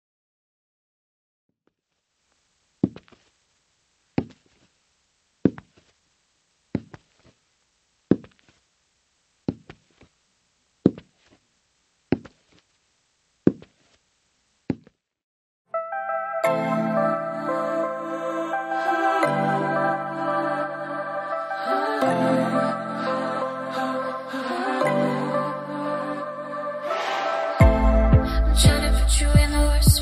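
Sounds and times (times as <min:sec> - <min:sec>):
footsteps on hard floor: 0:02.8 - 0:03.4, 0:04.2 - 0:04.8, 0:05.4 - 0:06.0, 0:06.7 - 0:07.4, 0:08.1 - 0:08.6, 0:09.5 - 0:10.2, 0:10.8 - 0:11.4, 0:12.1 - 0:12.8, 0:13.4 - 0:14.0, 0:14.7 - 0:15.0
music: 0:15.7 - 0:30.0.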